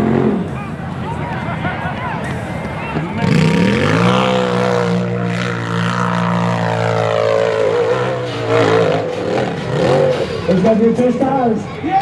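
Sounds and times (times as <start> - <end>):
engine at high revs: 0.0 - 0.6, 3.0 - 11.2.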